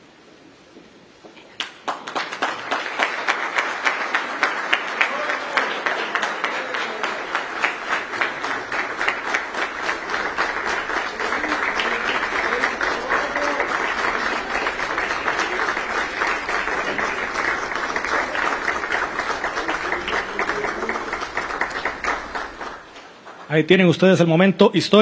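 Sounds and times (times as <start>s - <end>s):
audience applauding: 1.4s - 24.1s.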